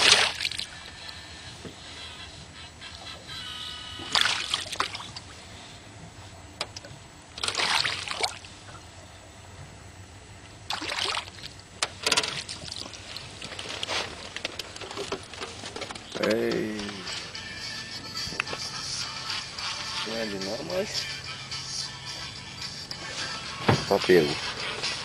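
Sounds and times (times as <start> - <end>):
fish splashing in water: 0.0 - 0.9, 4.0 - 5.3, 7.4 - 8.5, 10.7 - 11.6, 12.3 - 13.7.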